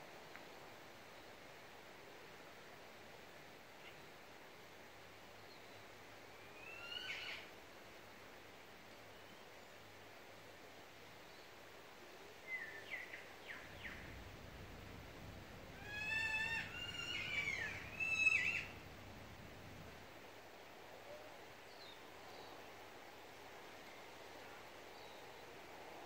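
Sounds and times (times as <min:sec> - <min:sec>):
faint outdoor background noise: 0:00.0 - 0:26.0
bird chirping: 0:15.9 - 0:18.8.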